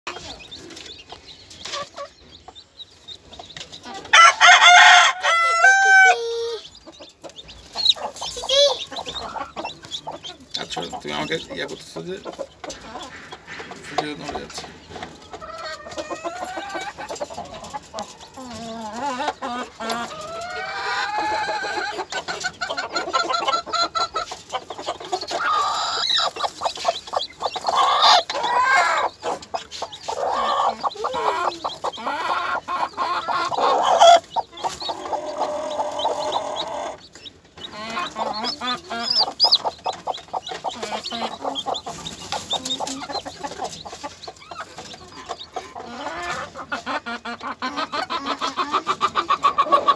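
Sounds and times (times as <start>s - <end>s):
chicks peeping: 0.1s - 49.9s
hen clucking: 0.1s - 49.9s.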